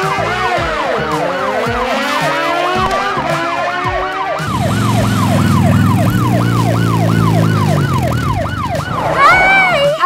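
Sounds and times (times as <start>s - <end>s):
toy police siren yelping: 4.4s - 10.0s.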